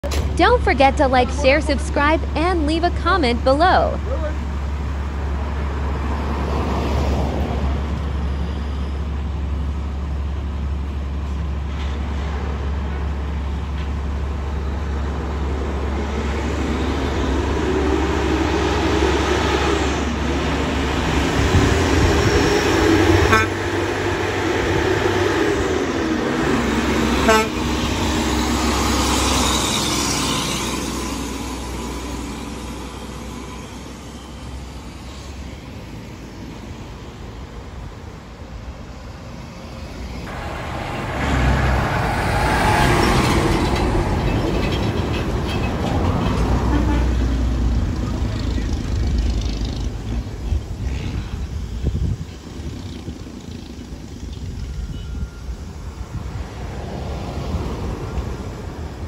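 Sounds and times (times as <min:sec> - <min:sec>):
diesel truck engines rumbling: 0:00.0 - 0:59.0
truck horns tooting: 0:23.0 - 0:24.0, 0:27.0 - 0:28.2, 0:46.5 - 0:47.5.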